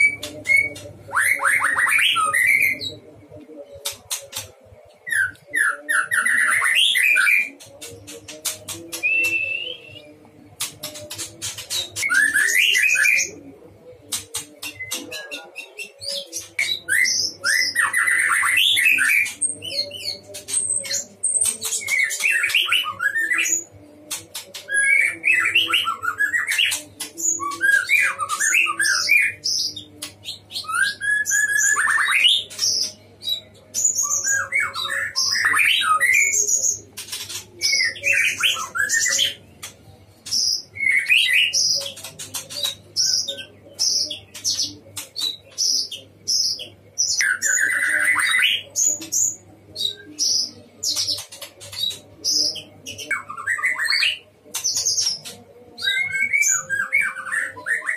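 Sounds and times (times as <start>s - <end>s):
bird singing whistled phrases: 9.0s - 10.0s.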